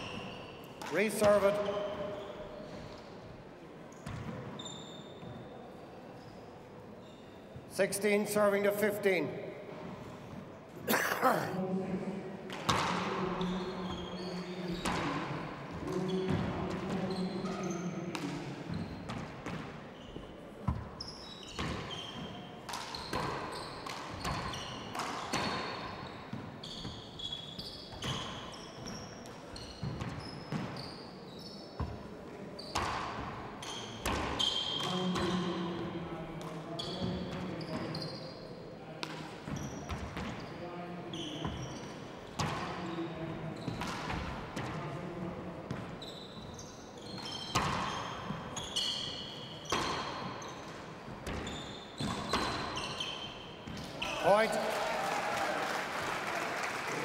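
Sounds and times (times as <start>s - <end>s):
shoes squeaking on wooden floor: 4.0s - 5.5s, 18.7s - 32.0s, 36.8s - 38.5s, 39.5s - 42.0s, 45.7s - 54.4s.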